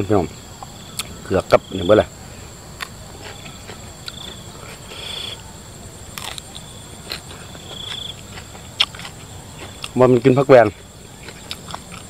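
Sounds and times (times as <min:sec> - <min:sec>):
buzzy insect trills: 0:00.0 - 0:12.0
crickets and insects calling: 0:00.0 - 0:12.0
crunching raw vegetable stems: 0:06.0 - 0:12.0.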